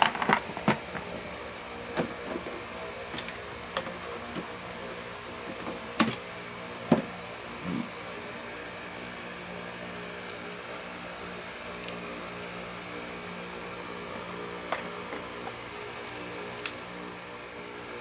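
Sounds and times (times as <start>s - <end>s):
steady mechanical hum: 0.0s - 18.0s.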